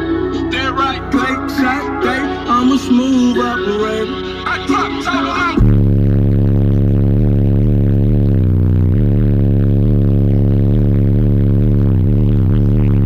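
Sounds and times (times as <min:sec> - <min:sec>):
deep pulsing bass note: 0:05.4 - 0:13.0.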